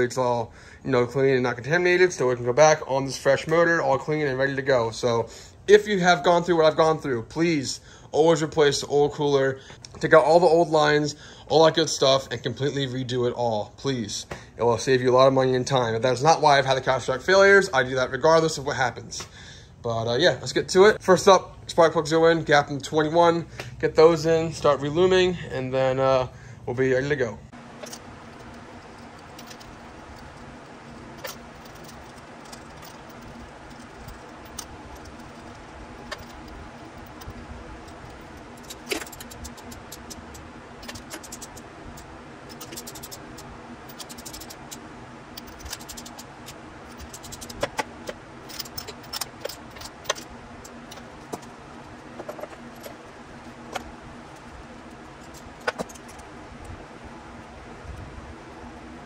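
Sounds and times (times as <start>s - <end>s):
steady low hum: 0.0s - 59.0s
metal tools clinking: 27.8s - 41.6s, 42.5s - 44.8s, 45.4s - 53.1s, 53.7s - 56.2s.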